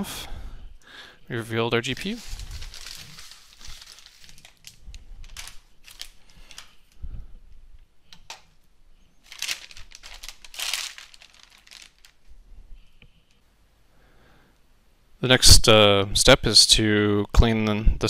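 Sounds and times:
anti-static bag crinkling: 0:01.8 - 0:07.0, 0:09.2 - 0:12.9.

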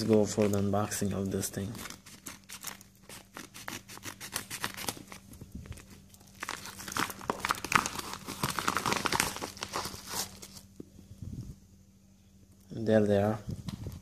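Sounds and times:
paper envelope crinkling: 0:00.0 - 0:10.7
scissors cutting paper: 0:01.8 - 0:05.2.

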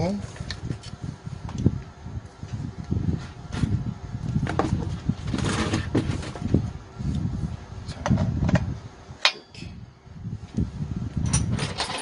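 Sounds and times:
engine parts bumping and rubbing: 0:02.4 - 0:06.8, 0:10.5 - 0:12.0.

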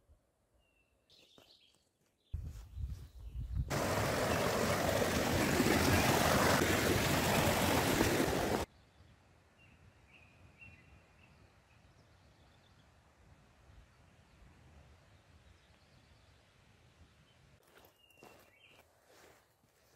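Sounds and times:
stream rushing over rocks: 0:03.7 - 0:08.7.

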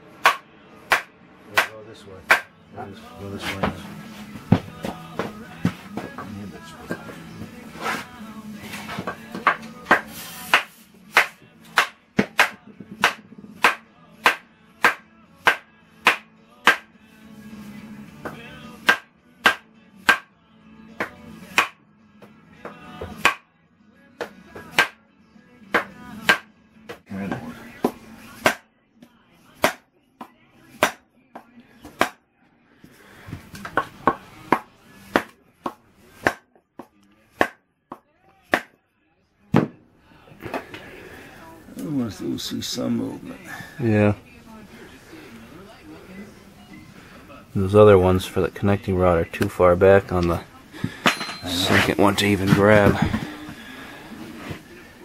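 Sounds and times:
music with clap-like beat: 0:00.2 - 0:02.5, 0:09.0 - 0:17.0, 0:18.2 - 0:20.3, 0:21.0 - 0:23.5, 0:24.2 - 0:25.0, 0:25.7 - 0:27.1, 0:27.8 - 0:32.2.

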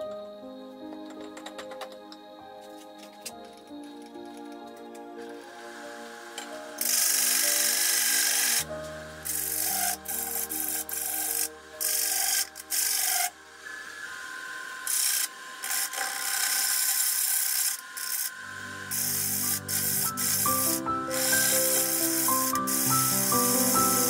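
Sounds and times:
background music: 0:00.0 - 0:24.0
lathe tool scraping wood: 0:09.2 - 0:13.3, 0:14.9 - 0:24.0.

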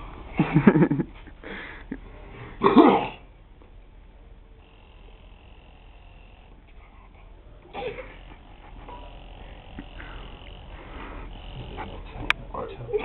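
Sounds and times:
breathing in through mouthpiece hiss: 0:01.4 - 0:02.6, 0:07.8 - 0:12.0.

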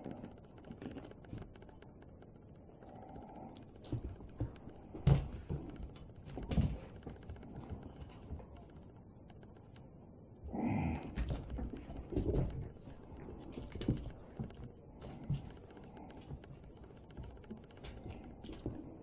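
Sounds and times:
dog paws tapping on carpet: 0:03.5 - 0:09.9, 0:11.0 - 0:19.0
dog pouncing thumps: 0:03.9 - 0:06.9.

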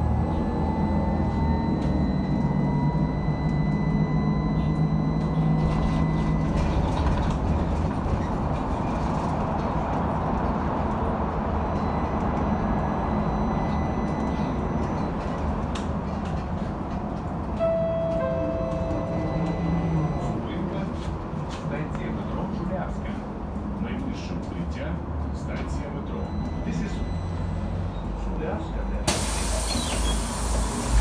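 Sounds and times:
low vehicle rumble: 0:30.5 - 0:31.0.

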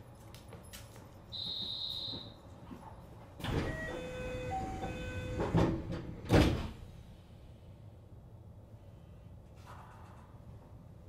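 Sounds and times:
doors shutting with thuds: 0:03.4 - 0:06.8.

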